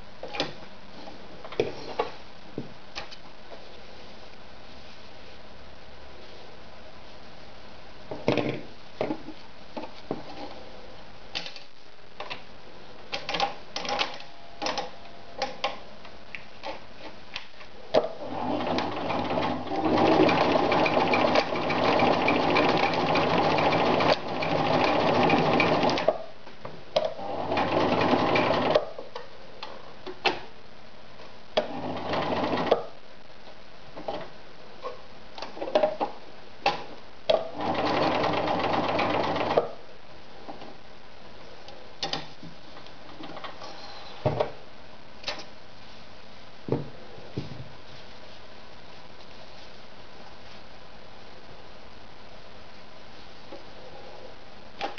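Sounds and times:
sewing machine stitching denim: 18.2s - 26.2s, 27.1s - 28.9s, 31.6s - 32.9s, 37.4s - 39.8s.

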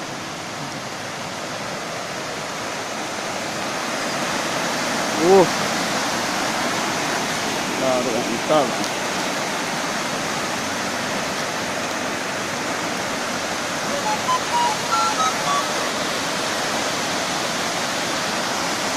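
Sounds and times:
river rushing over rocks: 0.0s - 18.9s
short whistled notes: 13.9s - 16.2s.

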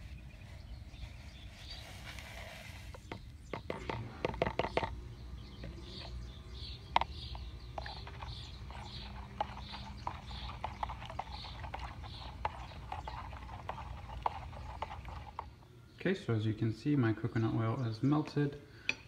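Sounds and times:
plastic spoon stirring and scraping: 0.0s - 15.6s
low steady rumble: 3.3s - 16.0s.

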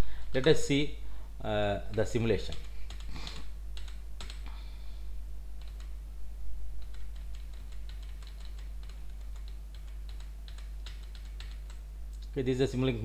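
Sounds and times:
steady low hum: 0.0s - 13.0s
keyboard keys tapping: 6.8s - 12.3s.

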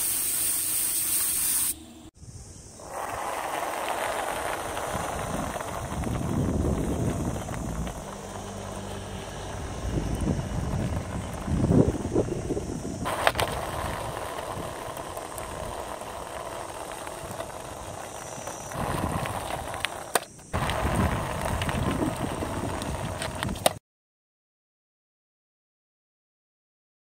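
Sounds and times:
wooden wheels rolling on asphalt: 2.7s - 23.8s.

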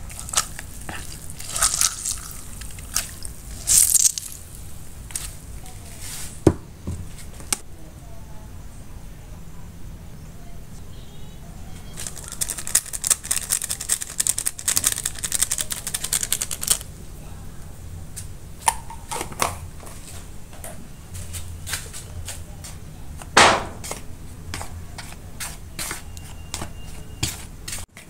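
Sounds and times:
plastic sachet crinkling: 0.0s - 5.3s, 12.0s - 16.9s.

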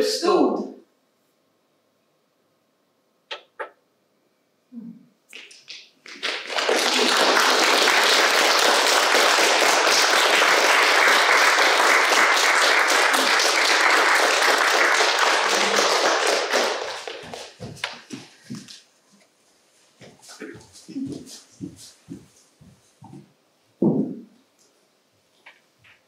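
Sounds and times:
audience applauding: 5.4s - 18.1s.

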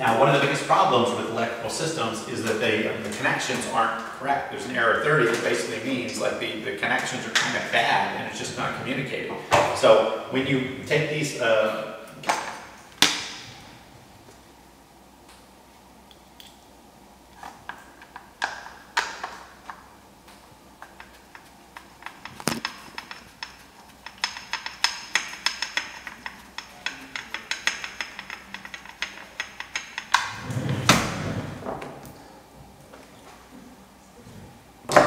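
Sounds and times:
ratchet clicking: 20.8s - 30.3s.

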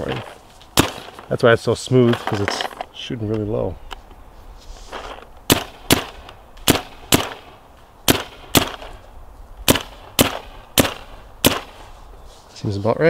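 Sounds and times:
paintball marker shots: 0.8s - 1.3s, 5.4s - 7.5s, 8.1s - 9.0s, 9.6s - 11.8s.

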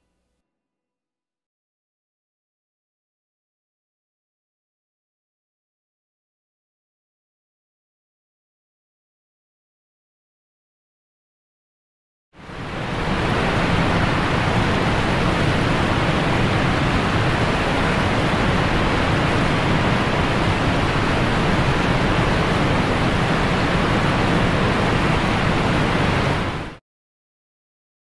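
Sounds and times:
steady rushing noise: 12.4s - 26.8s.

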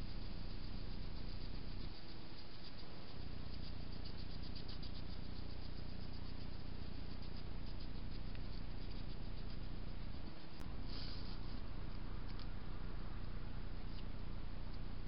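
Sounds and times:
insect chirping trill: 0.0s - 10.6s.

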